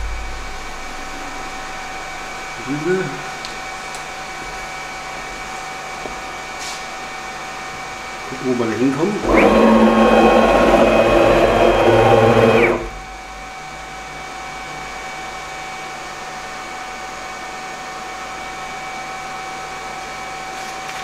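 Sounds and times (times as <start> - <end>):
steady hum with high tone: 0.0 - 5.6, 8.2 - 16.2
stepper motors whining: 9.1 - 13.4.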